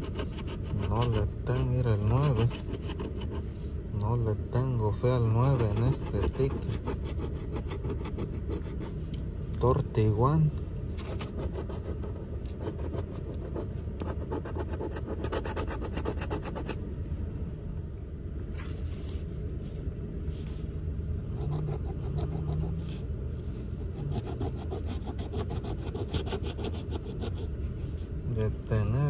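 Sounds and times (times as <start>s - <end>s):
coin scratching lottery ticket: 0.0s - 3.5s, 5.2s - 8.9s, 11.0s - 16.8s, 21.3s - 22.8s, 23.8s - 27.5s
low rumble: 16.6s - 26.0s.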